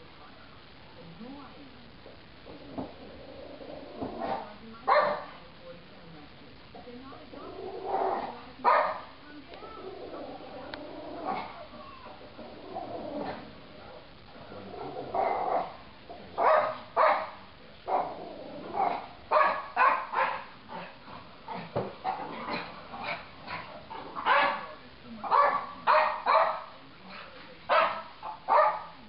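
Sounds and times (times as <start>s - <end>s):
dog barking: 4.3s - 5.4s, 8.2s - 9.1s, 16.4s - 18.2s, 18.8s - 20.5s, 22.1s - 26.7s, 27.7s - 29.0s.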